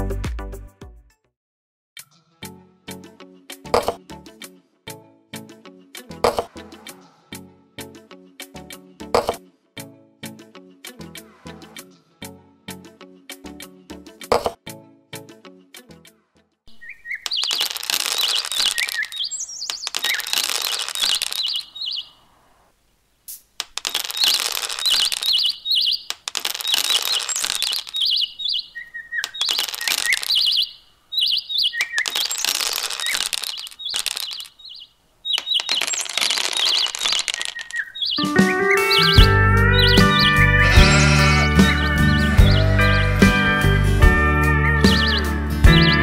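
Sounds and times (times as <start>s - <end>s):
pebbles clicking together: 17.2s - 21.6s, 23.6s - 25.4s, 26.1s - 28.1s, 29.2s - 30.4s, 31.8s - 34.5s, 35.4s - 37.9s.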